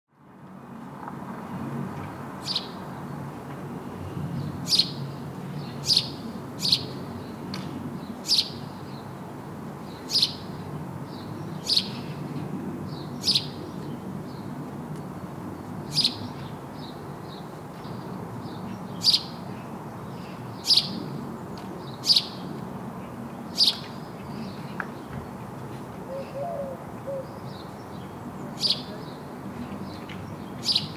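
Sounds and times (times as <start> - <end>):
sparrow chirping: 2.4 - 2.8, 4.6 - 5.0, 5.6 - 7.0, 8.2 - 9.0, 9.9 - 10.5, 11.1 - 12.1, 12.9 - 13.6, 15.9 - 17.4, 18.5 - 19.4, 20.2 - 21.0, 21.9 - 22.4, 23.5 - 24.5, 26.2 - 29.2, 30.4 - 30.9.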